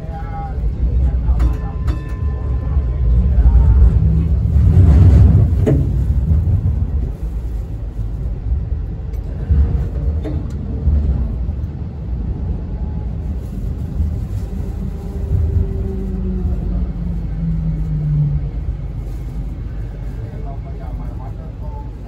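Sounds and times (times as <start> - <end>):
tram wheels and motors rumbling: 0.0 - 22.0.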